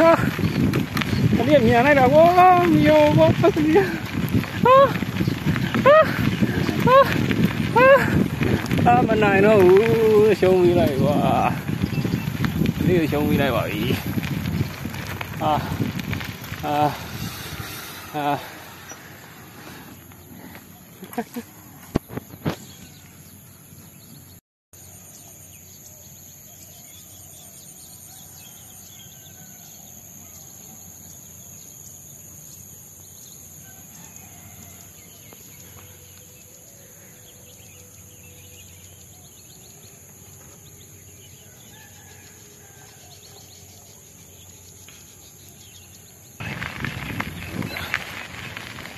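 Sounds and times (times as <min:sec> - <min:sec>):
low even rumble: 0:00.4 - 0:20.6.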